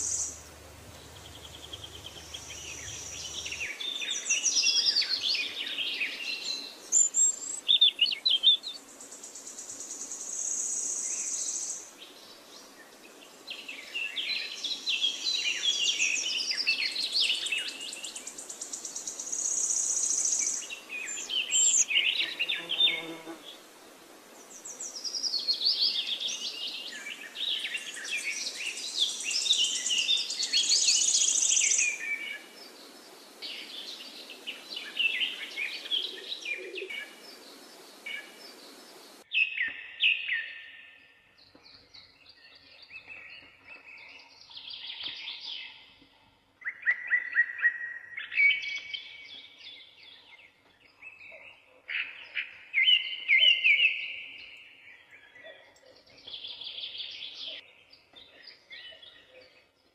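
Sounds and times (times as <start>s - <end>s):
steady hiss: 0.0s - 4.6s, 8.8s - 16.4s, 23.4s - 39.2s
birds chirping and singing: 0.0s - 8.8s, 24.6s - 59.9s.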